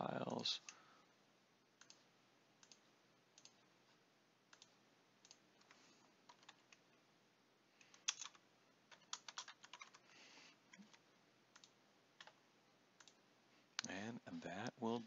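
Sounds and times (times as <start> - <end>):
mouse clicks: 2.6 - 3.6, 4.5 - 5.8, 10.7 - 12.4
keyboard keystrokes: 7.9 - 10.0.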